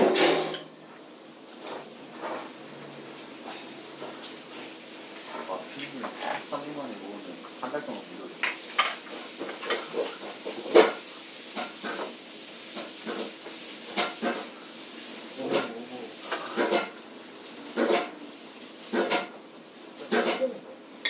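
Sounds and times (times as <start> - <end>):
forks and spoons clinking on plates: 8.4 - 11.0, 17.8 - 18.1, 18.9 - 19.3, 20.0 - 20.5.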